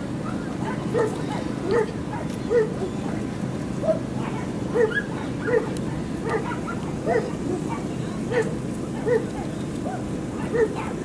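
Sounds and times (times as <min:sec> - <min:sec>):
dog barking: 0:00.6 - 0:02.7, 0:03.8 - 0:09.3, 0:09.9 - 0:11.0.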